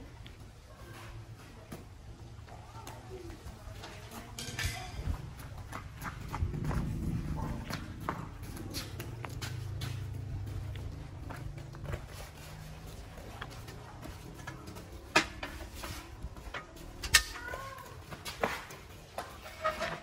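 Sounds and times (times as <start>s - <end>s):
faint child's voice: 2.4s - 5.2s, 17.1s - 18.6s.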